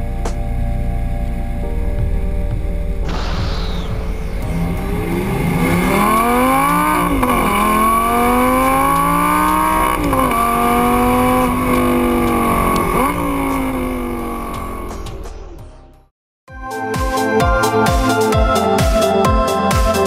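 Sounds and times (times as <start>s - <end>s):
sports car engine accelerating: 0.0s - 15.8s.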